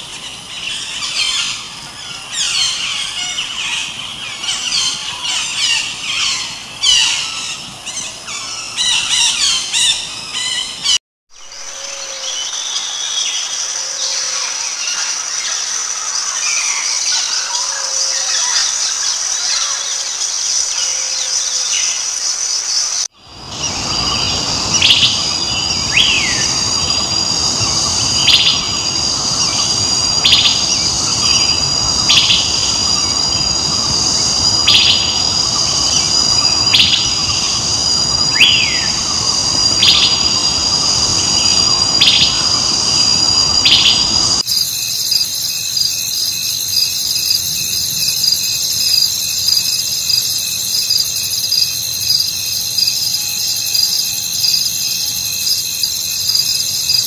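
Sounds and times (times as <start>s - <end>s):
insect chorus: 0.0s - 57.0s
background hiss: 23.2s - 57.0s
bird chirps: 23.6s - 44.4s.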